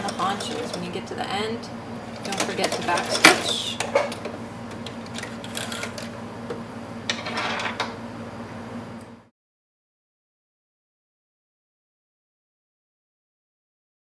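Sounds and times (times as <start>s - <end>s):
sewing machine humming: 0.0s - 1.2s, 2.0s - 4.3s, 5.1s - 6.2s.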